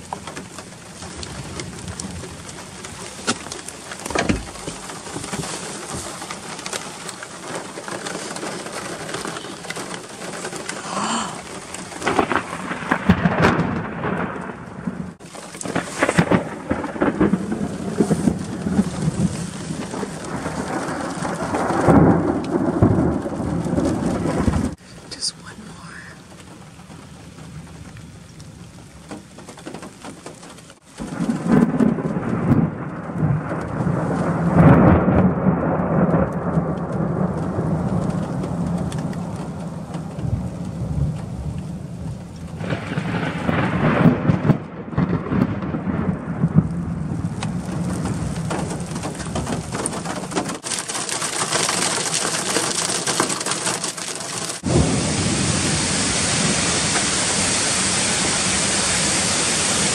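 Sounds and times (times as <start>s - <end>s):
rain falling on a car: 0.0s - 59.9s
thunderclap: 1.0s - 24.8s, 26.2s - 59.9s
rolling thunder: 9.0s - 24.8s, 31.0s - 50.6s, 54.4s - 59.9s
waterfall rushing: 54.6s - 59.9s.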